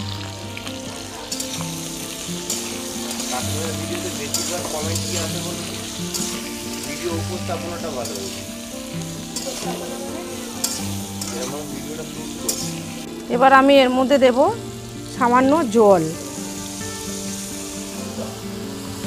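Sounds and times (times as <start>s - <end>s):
food sizzling in oil: 0.0s - 19.0s
soft background music: 0.0s - 19.0s
metal spatula scraping pan: 2.2s - 11.7s.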